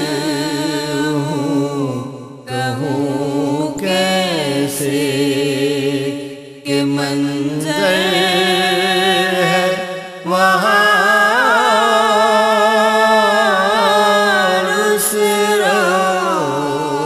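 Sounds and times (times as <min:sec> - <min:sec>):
person singing melodic phrases: 0:06.7 - 0:17.0.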